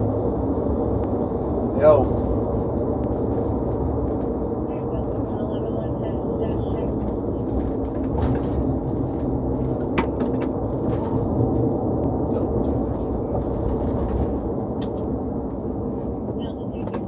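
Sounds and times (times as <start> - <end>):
car road and engine rumble: 0.0 - 17.0.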